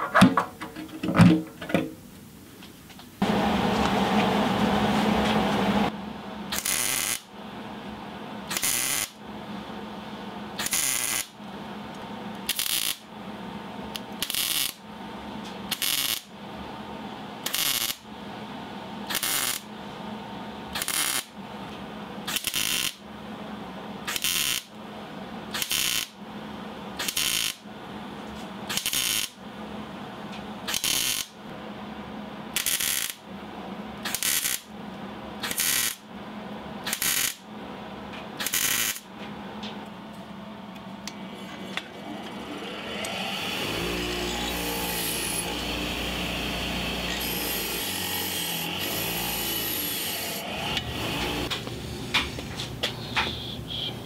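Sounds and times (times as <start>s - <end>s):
welder arc crackling: 6.6s - 7.2s, 8.5s - 9.1s, 10.6s - 11.3s, 12.4s - 13.0s, 14.0s - 14.8s, 15.7s - 16.2s, 17.5s - 18.0s, 19.1s - 19.7s, 24.1s - 24.6s, 25.6s - 26.1s, 27.0s - 27.6s, 28.7s - 29.4s, 30.7s - 31.3s, 32.6s - 33.2s, 34.1s - 34.7s, 35.5s - 36.0s, 36.9s - 37.4s, 38.4s - 39.0s.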